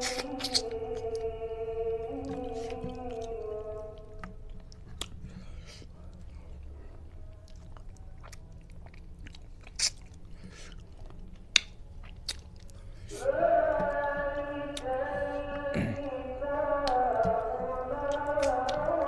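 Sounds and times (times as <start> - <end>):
lip smacks: 0.0 - 1.3, 2.3 - 12.8, 16.8 - 19.0
wet chewing: 0.0 - 19.0.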